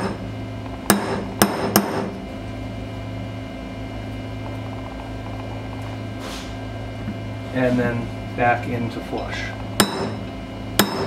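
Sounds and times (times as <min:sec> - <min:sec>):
steady electrical hum: 0:00.0 - 0:11.0
hammer striking steel punch: 0:00.9 - 0:02.2, 0:09.8 - 0:10.2, 0:10.8 - 0:11.0.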